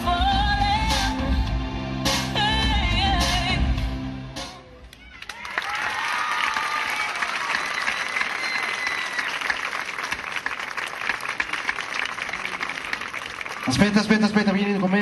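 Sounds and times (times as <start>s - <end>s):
audience applauding: 4.9s - 15.0s.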